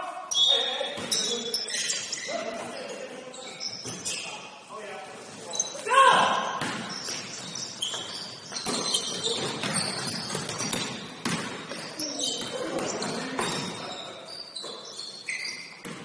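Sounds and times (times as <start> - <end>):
players' voices: 0.0 - 10.7, 11.4 - 14.8
sneaker squeaks: 0.0 - 16.0
basketball bouncing on court: 6.6 - 13.9, 15.7 - 16.0.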